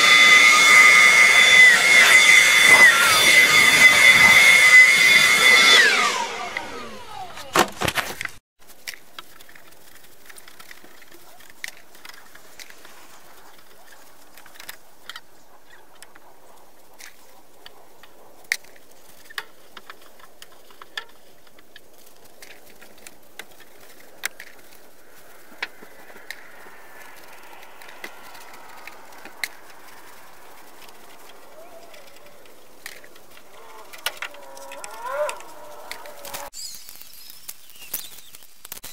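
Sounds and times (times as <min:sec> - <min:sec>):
faint gliding tones: 0:22.2 - 0:36.5.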